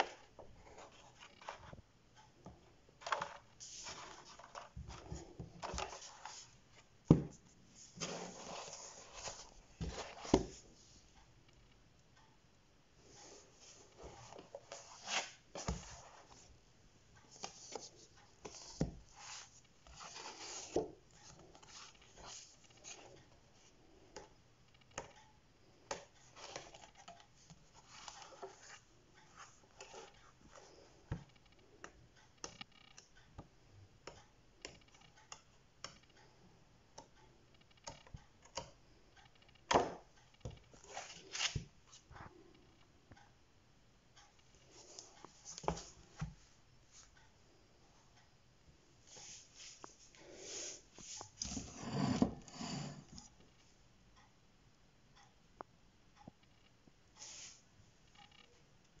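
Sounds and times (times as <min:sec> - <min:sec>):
soft clicks of books handled: 0:00.0 - 0:12.2, 0:13.0 - 0:16.6, 0:17.2 - 0:43.3, 0:44.2 - 0:47.4, 0:49.0 - 0:51.6
pages flipping: 0:03.0 - 0:06.5.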